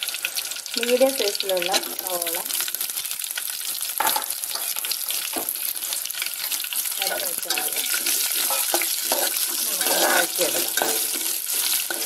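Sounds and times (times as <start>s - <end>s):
vegetables sizzling in oil: 0.0s - 12.0s
metal spoon scraping pan: 4.0s - 5.0s, 6.4s - 12.0s.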